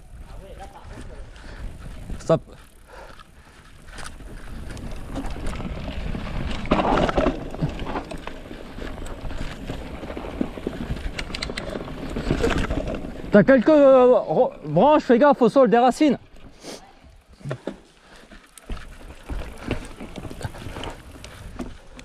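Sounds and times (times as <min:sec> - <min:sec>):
bike rattling over bumps: 0:00.0 - 0:16.6, 0:17.2 - 0:22.0
bike tyres rolling over dirt: 0:00.0 - 0:22.0.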